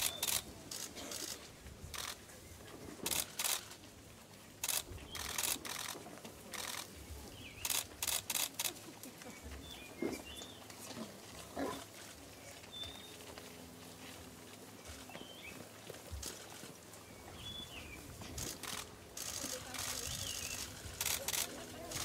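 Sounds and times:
camera shutter clicks: 0:00.0 - 0:02.2, 0:03.0 - 0:03.8, 0:04.6 - 0:06.9, 0:07.6 - 0:08.8, 0:18.4 - 0:22.0.

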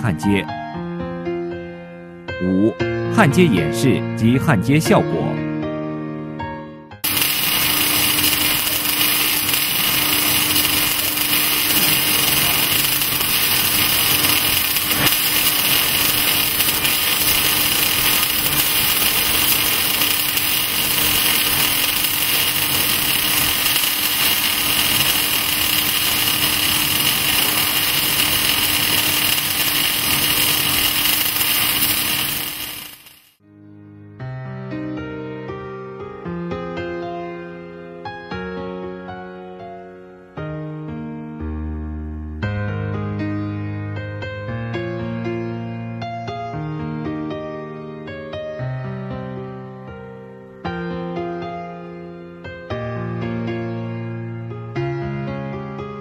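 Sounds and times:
welding arc sizzling: 0:07.0 - 0:33.4.

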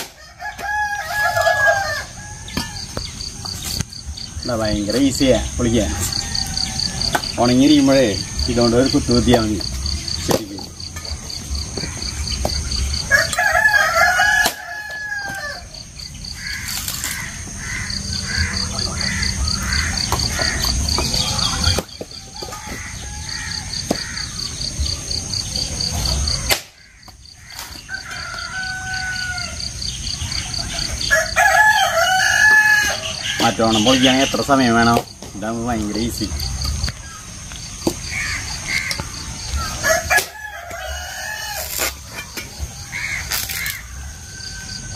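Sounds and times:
rooster crowing: 0:00.0 - 0:03.1, 0:05.7 - 0:08.4, 0:12.9 - 0:25.4, 0:26.1 - 0:34.3, 0:38.1 - 0:44.9
high-pitched insect trill: 0:00.2 - 0:44.9.

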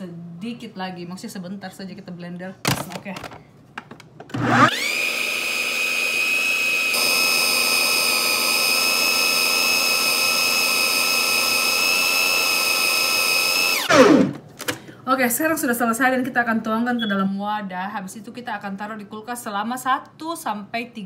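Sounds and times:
blender motor whining: 0:04.3 - 0:14.4.

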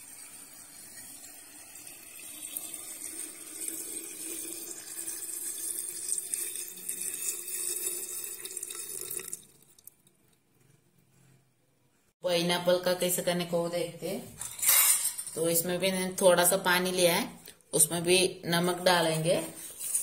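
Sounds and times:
liquid pouring into glass jar: 0:00.1 - 0:10.4.

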